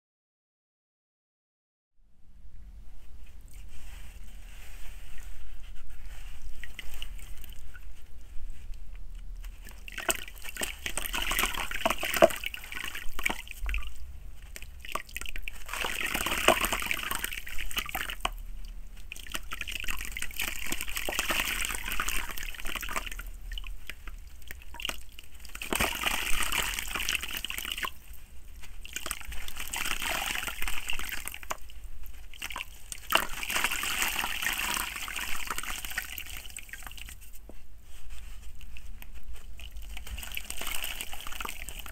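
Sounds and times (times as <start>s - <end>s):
hands swishing muddy water: 9.5s - 37.4s, 38.0s - 41.9s
soil splashing into water: 9.6s - 18.4s, 19.0s - 28.2s, 28.8s - 37.2s, 39.6s - 41.9s.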